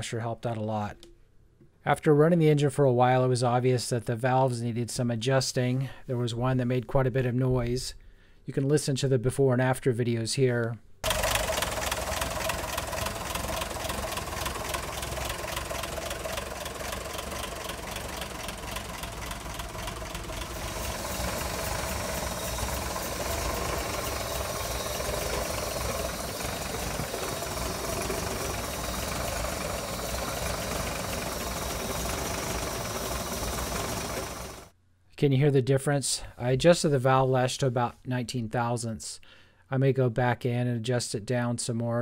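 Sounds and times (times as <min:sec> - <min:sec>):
truck engine idling with valve clatter: 0:11.0 - 0:34.7.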